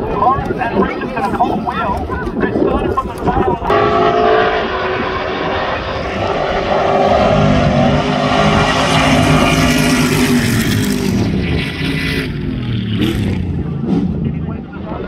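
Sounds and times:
truck engines racing past: 3.7 - 15.0.

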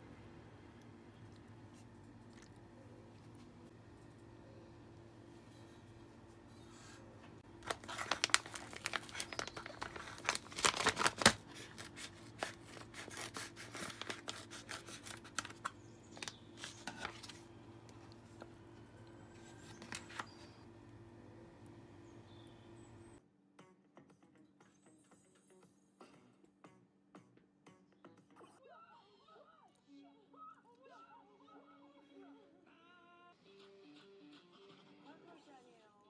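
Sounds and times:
plastic pouch crinkling: 7.4 - 17.4.

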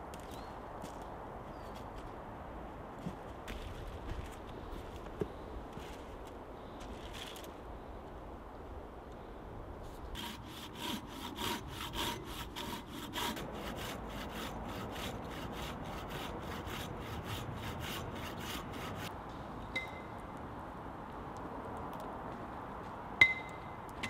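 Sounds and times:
hand saw cutting wood: 10.1 - 19.1.

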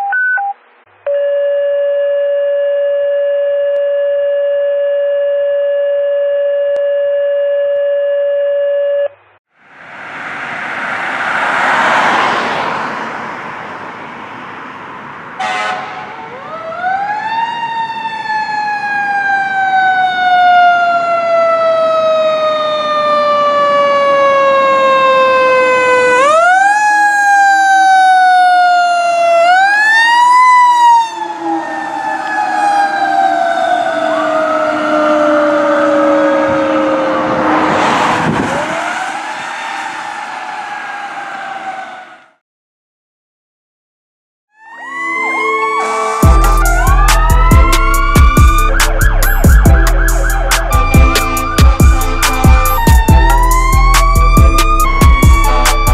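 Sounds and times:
road noise: 0.6 - 1.1, 9.2 - 42.4, 44.6 - 55.9
horn blast: 15.4 - 16.2, 44.8 - 55.9
steady electronic tone: 44.8 - 55.9.

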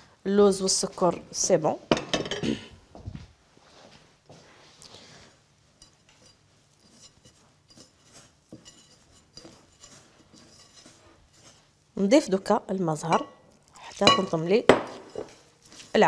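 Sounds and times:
utensils and glass bowl clinking: 5.8 - 11.6, 13.0 - 15.5.

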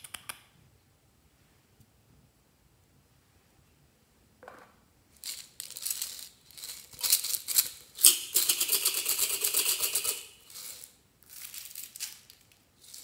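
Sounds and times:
sequins pattering onto foam beads: 5.2 - 13.0.

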